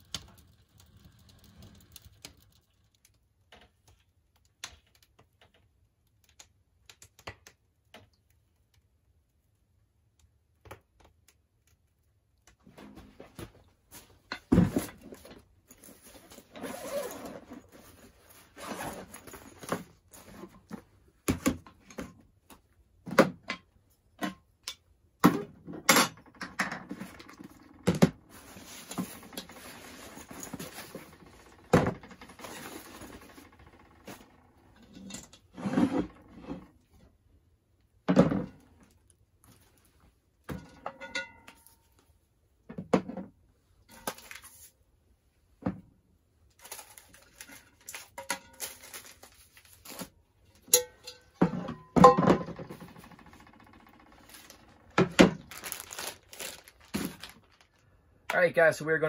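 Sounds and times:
fabric rustling: 15.8s - 20.6s, 55.4s - 57.8s.

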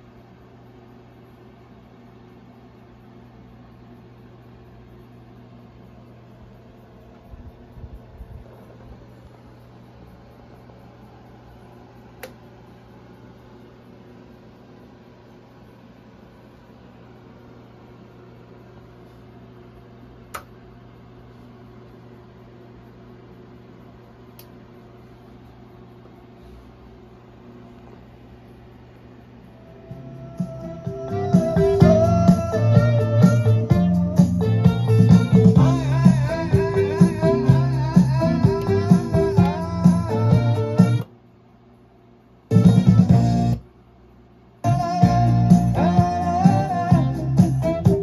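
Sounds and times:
low electrical hum: 0.0s - 48.0s
amplifier power switch click: 12.2s - 12.5s, 20.3s - 20.6s.

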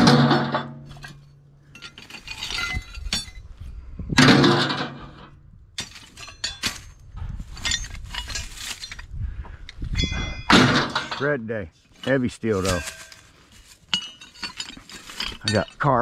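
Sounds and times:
loud metal crash: 0.0s - 1.0s, 4.2s - 5.3s, 10.4s - 11.3s
scrap steel clanking: 0.0s - 16.0s.

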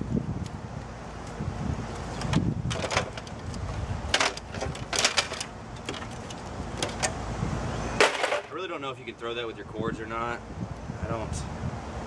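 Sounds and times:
wind rumble on microphone: 0.0s - 8.0s, 9.0s - 12.0s
hard plastic clicking and clattering: 2.2s - 7.2s.

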